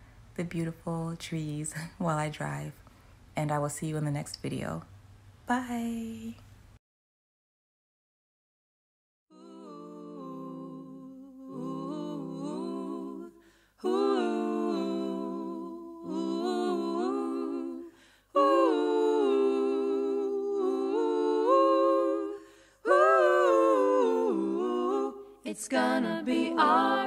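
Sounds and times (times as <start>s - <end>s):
person humming a cappella: 9.3s - 27.0s.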